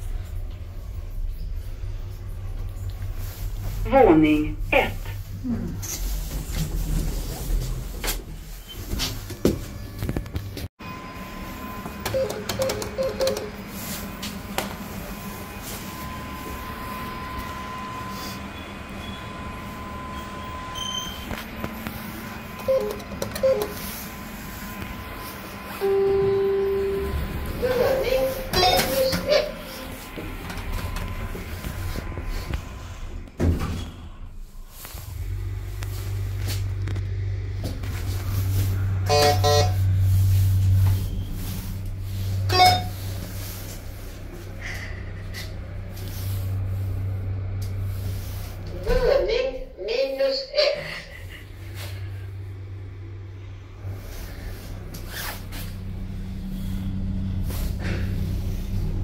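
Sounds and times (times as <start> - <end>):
elevator two-tone chime: 10.9 - 13.6, 25.8 - 30.0.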